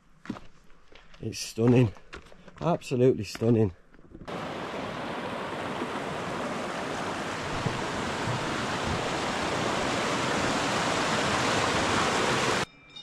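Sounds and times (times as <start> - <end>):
stream rushing over rocks: 4.3 - 12.7.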